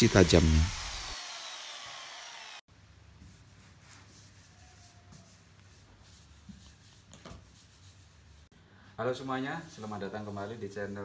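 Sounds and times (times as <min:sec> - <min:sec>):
angle grinder whine: 0:00.0 - 0:02.6
soft rubbing sounds: 0:03.1 - 0:08.5, 0:09.2 - 0:11.0.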